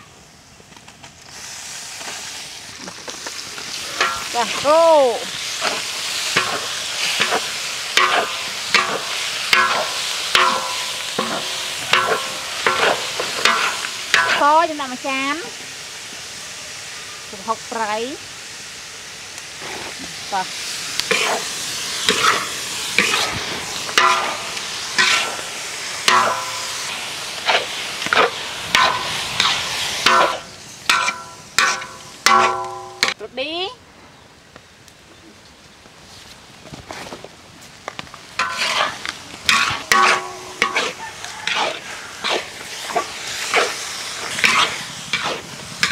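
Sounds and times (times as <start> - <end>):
meat sizzling: 0.0 - 33.2, 37.6 - 45.9
metal spatula scraping a wok: 3.7 - 4.6, 5.4 - 14.5, 21.1 - 25.4, 26.0 - 33.2, 38.4 - 45.9.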